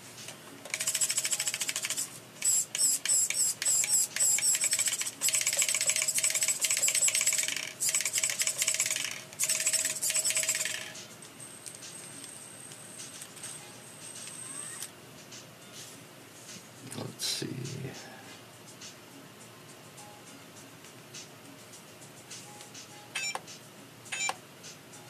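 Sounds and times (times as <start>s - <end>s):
faint high electronic whine: 0.7s - 14.9s.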